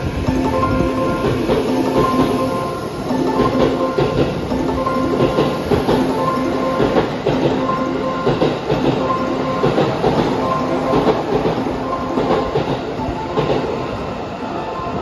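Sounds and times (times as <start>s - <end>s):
train wheels clicking over rail joints: 0.0s - 14.0s.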